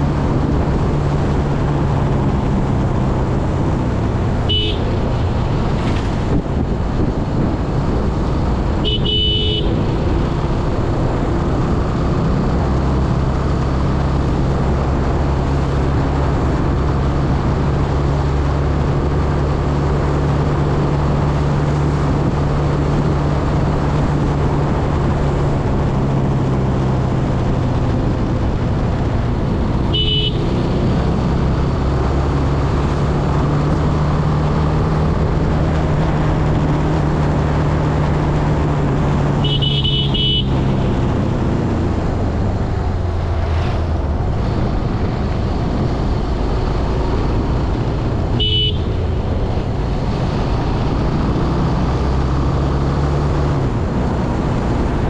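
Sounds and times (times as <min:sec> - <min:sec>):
motorcycle engine cruising: 0:00.0 - 0:55.0
wind and road noise: 0:00.0 - 0:55.0
horn beeping: 0:04.4 - 0:05.0, 0:29.9 - 0:30.6, 0:39.4 - 0:40.7, 0:48.4 - 0:49.0.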